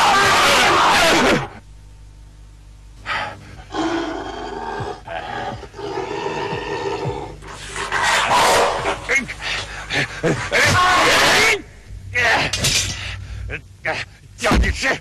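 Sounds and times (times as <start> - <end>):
tiger roaring: 3.7 - 9.4.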